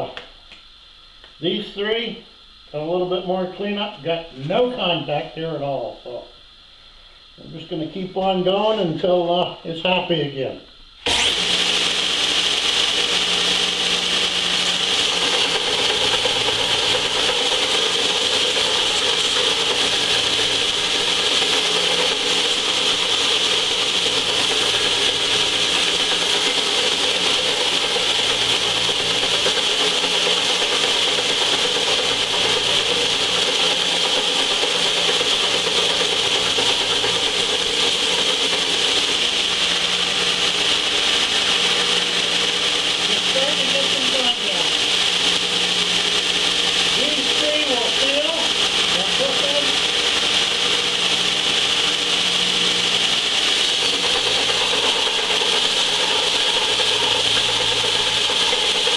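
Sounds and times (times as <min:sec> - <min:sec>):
metal grinding on belt sander: 0:11.0 - 0:58.9
low motor hum: 0:11.1 - 0:58.9.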